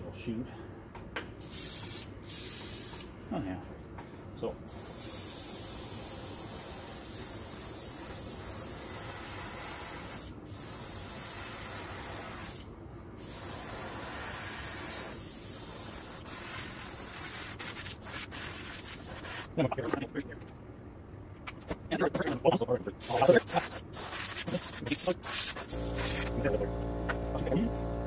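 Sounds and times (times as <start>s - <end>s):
airbrush hiss: 1.4s - 3.1s, 4.7s - 19.5s, 23.0s - 26.4s.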